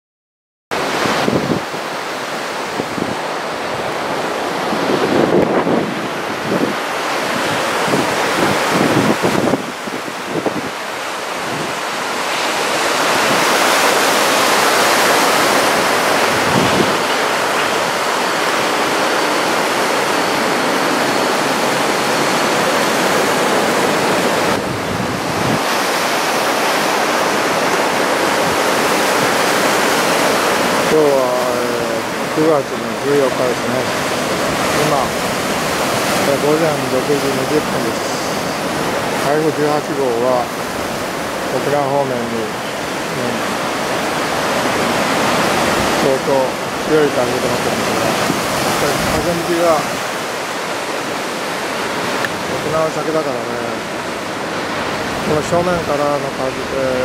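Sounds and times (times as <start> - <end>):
wind buffeting microphone: 0.8 - 31.0, 42.5 - 52.7
surf breaking on beach: 0.8 - 57.0.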